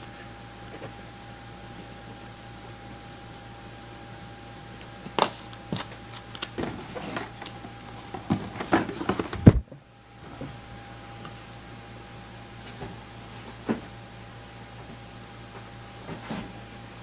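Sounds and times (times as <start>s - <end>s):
faint steady hum: 0.0s - 17.0s
objects being handled: 4.8s - 9.6s.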